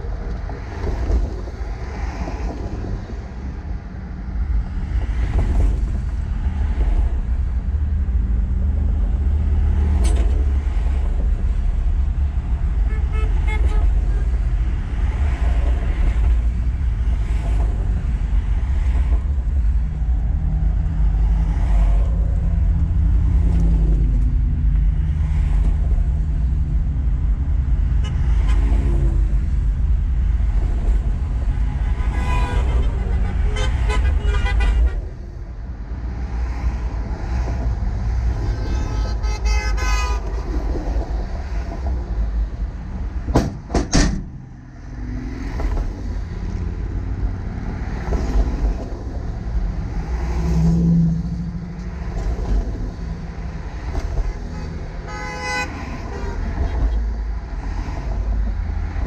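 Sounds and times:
low traffic rumble: 0.0 - 59.0
vehicle horns blasting: 12.8 - 14.2, 32.0 - 35.1, 38.5 - 40.4, 54.4 - 56.5.

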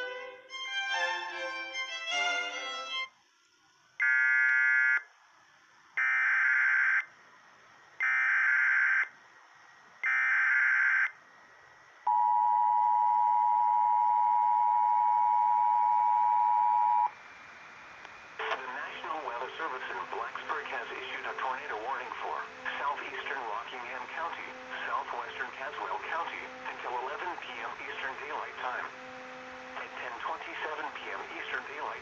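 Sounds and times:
music: 0.0 - 3.2, 18.4 - 32.0.

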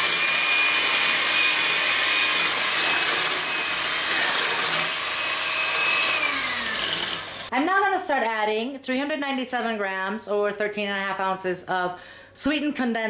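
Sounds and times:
electric hand mixer whirring: 0.0 - 7.5.

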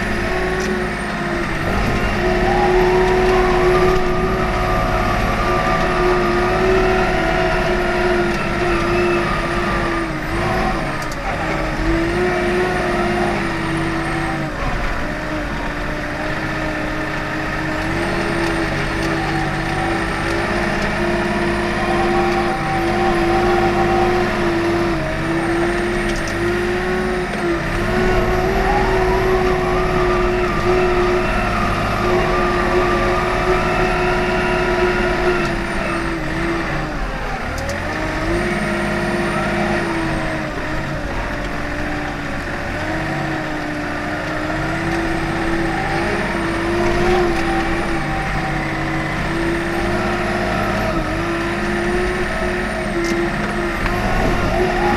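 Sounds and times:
diesel engine running: 0.0 - 54.9.

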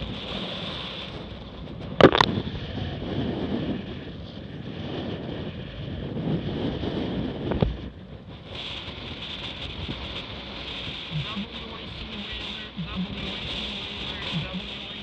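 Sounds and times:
water splashing along hull: 0.0 - 2.7
wind buffeting microphone: 0.0 - 15.0
sharp water slap: 2.0 - 2.3.

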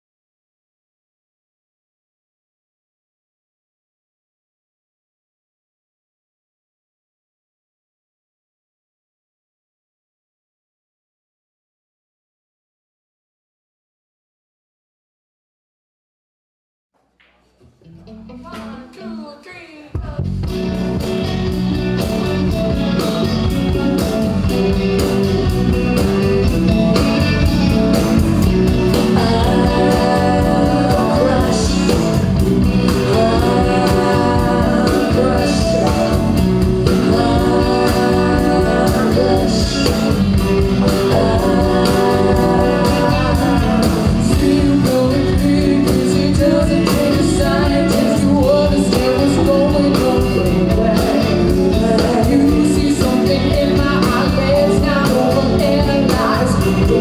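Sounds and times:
woman singing lead: 18.3 - 20.6, 28.1 - 57.0
pop-rock band playing: 20.0 - 57.0.

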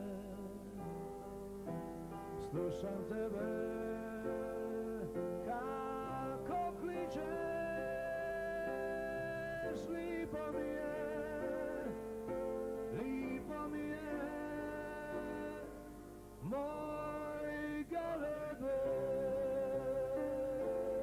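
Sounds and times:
piano: 0.0 - 21.0
men singing a ballad: 2.4 - 12.0.

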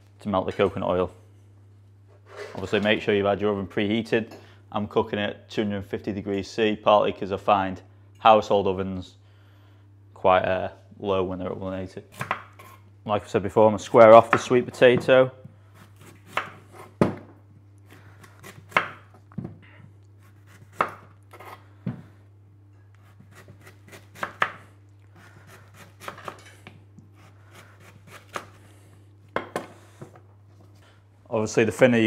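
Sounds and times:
knife chopping on wooden board: 15.9 - 17.3, 17.9 - 19.1, 20.3 - 22.0, 23.1 - 24.6, 25.5 - 26.4.

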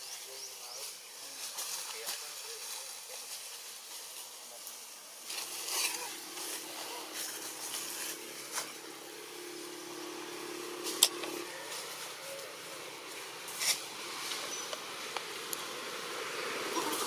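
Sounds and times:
motor engine humming: 4.3 - 17.0.

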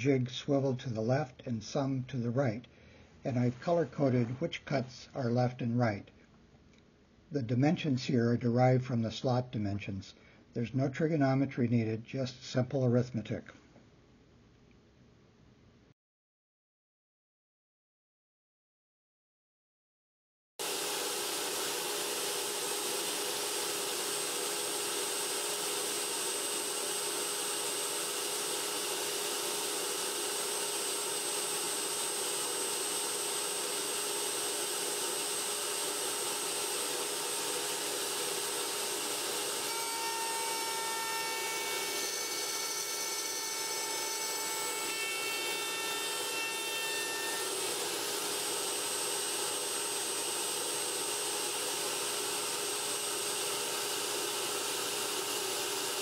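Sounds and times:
router whining: 20.6 - 56.0.

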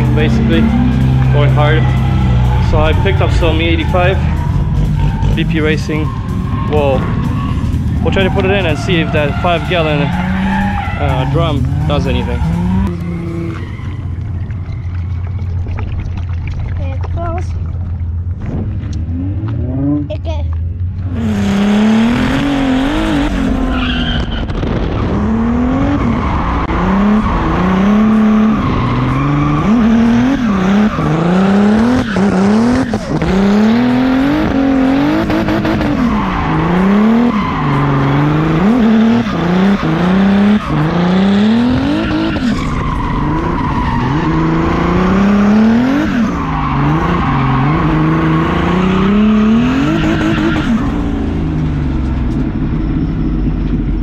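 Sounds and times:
tyres squealing: 0.0 - 15.3
car engine revving: 0.0 - 54.0.

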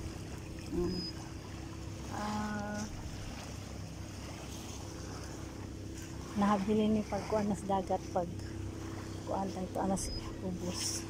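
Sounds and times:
faint constant hum: 0.0 - 11.0
low outdoor rumble: 0.0 - 11.0.

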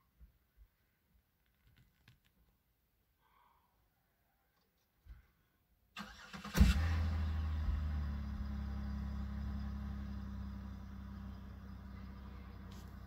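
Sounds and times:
car engine starting and idling: 6.0 - 13.0.

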